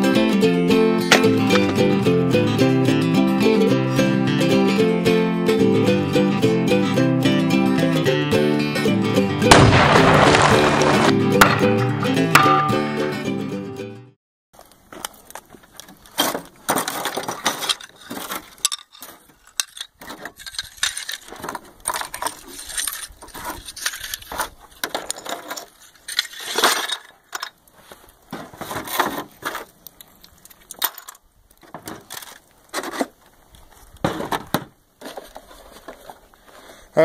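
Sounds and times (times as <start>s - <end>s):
tile pieces clinking and scraping: 17.0s - 27.5s.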